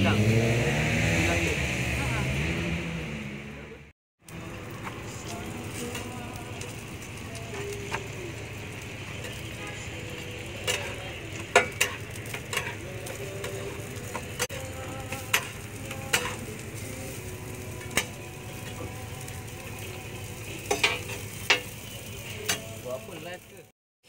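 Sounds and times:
food sizzling on a griddle: 4.2s - 23.7s
metal spatula clinking on griddle: 10.6s - 13.7s, 15.1s - 16.5s, 20.6s - 21.8s.

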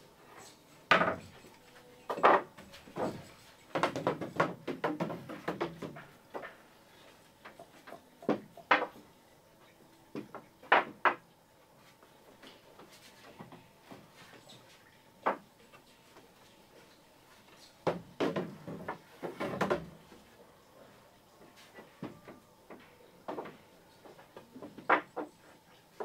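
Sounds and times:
wood knocking on wood: 0.9s - 1.3s, 2.1s - 6.5s, 17.8s - 20.0s.

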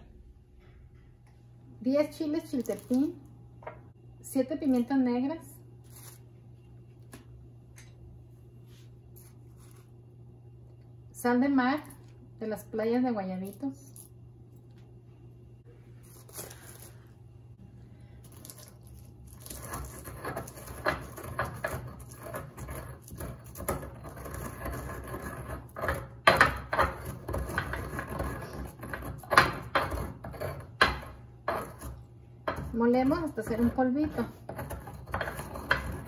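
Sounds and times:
stone pestle grinding and pounding: 19.3s - 36.0s.

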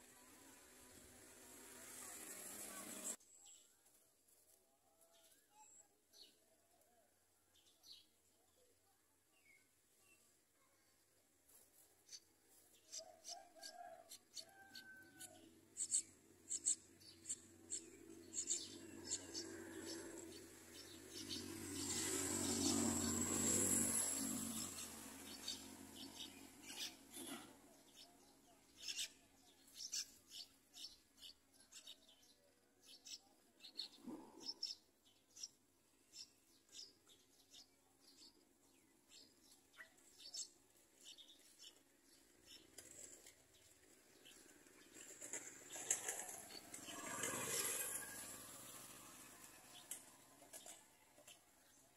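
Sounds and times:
nestling birds cheeping: 12.1s - 42.7s.

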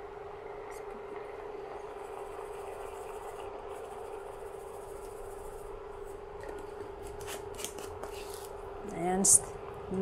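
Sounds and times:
induction cooktop humming: 0.0s - 10.0s
sauce simmering: 0.1s - 7.0s.

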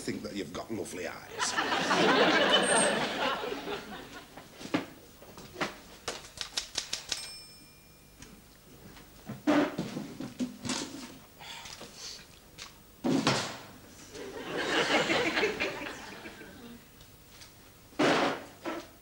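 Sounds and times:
typewriter keys clacking: 6.1s - 7.4s
typewriter bell ringing: 6.9s - 8.2s.

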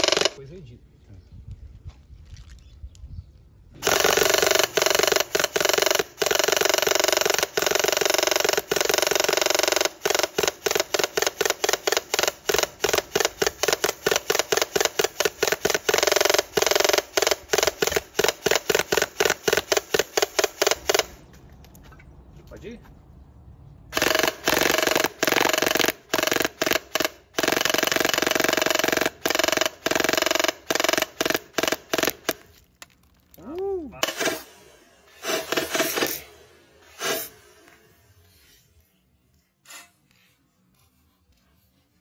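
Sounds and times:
airsoft gun firing full-auto: 0.0s - 0.4s, 3.8s - 21.2s, 23.9s - 32.5s, 35.2s - 37.3s.

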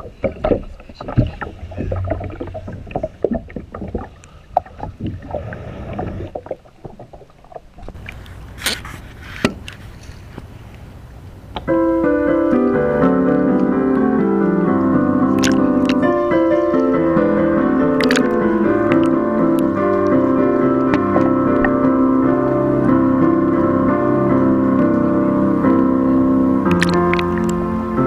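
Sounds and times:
water lapping and sloshing: 0.0s - 10.7s, 15.3s - 25.0s, 26.7s - 27.8s
low steady rumble: 0.0s - 12.8s
piano music: 11.6s - 28.0s.

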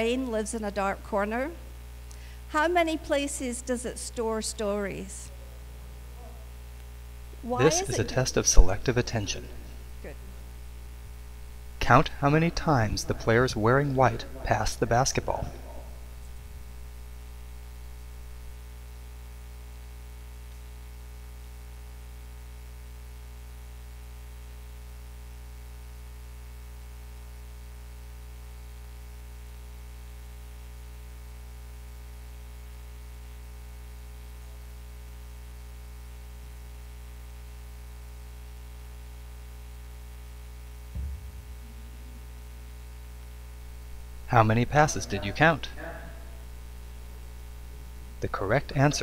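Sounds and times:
electrical mains hum: 0.0s - 49.0s
low thump: 40.9s - 42.3s.

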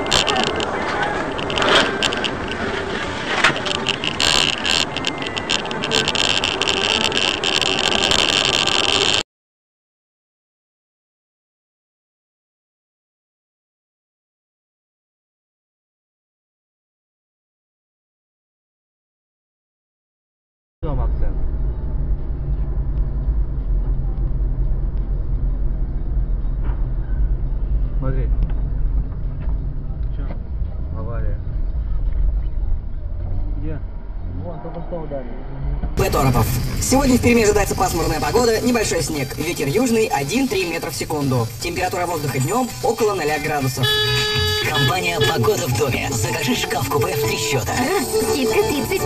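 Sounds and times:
car road and engine noise: 0.0s - 9.2s, 20.8s - 49.0s.

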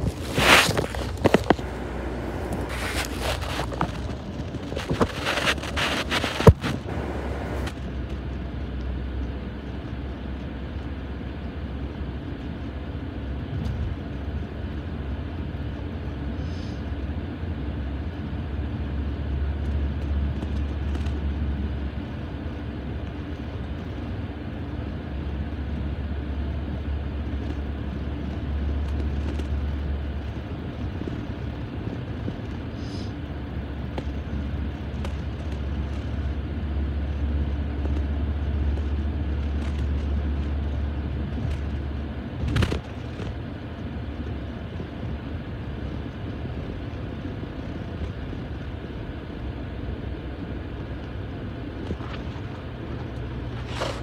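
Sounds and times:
camera handling rustles and knocks: 0.0s - 7.7s, 51.8s - 54.0s
car engine and road rumble: 0.0s - 54.0s.

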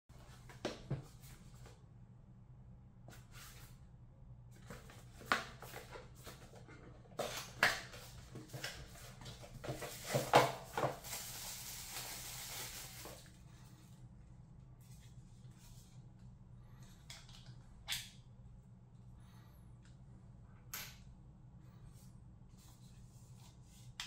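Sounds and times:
plastic wrap rustling: 7.5s - 13.4s.

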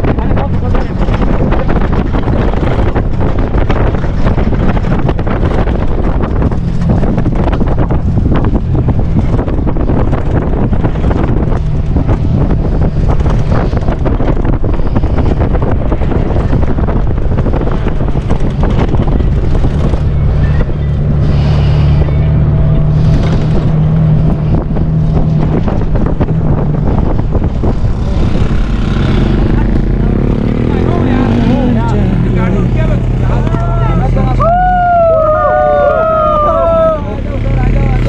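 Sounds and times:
car engine running: 0.0s - 38.0s
wind buffeting microphone: 0.0s - 38.0s.

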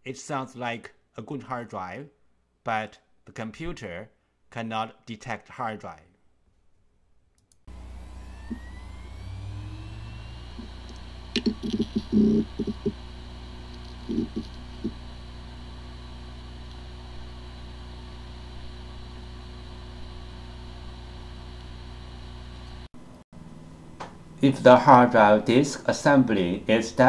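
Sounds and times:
hard drive spinning whine: 7.7s - 22.9s
hard drive heads clicking: 10.6s - 13.0s, 13.6s - 15.0s.

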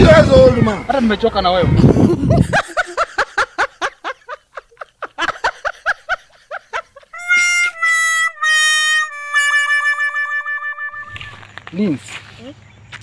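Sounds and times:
high-pitched snickering laugh: 1.8s - 7.4s
whistle-like musical tune: 7.2s - 11.5s.

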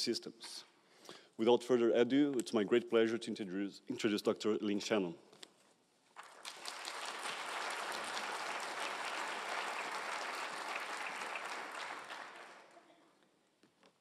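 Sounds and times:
audience applauding: 6.2s - 12.8s.

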